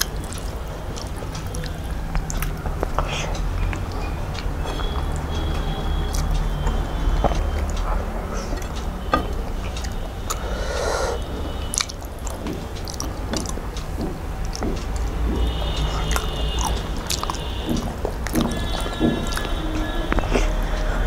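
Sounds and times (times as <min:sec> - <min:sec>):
fingers squishing food: 0:00.0 - 0:07.9, 0:11.7 - 0:20.5
chewing and wet mouth smacks: 0:00.0 - 0:10.5, 0:11.6 - 0:20.7.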